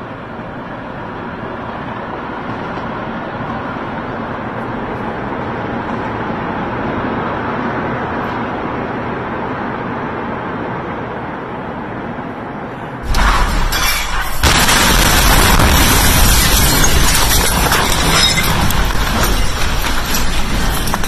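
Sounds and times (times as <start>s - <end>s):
loud rumbling noise: 0.0s - 21.0s
explosion boom: 13.0s - 21.0s.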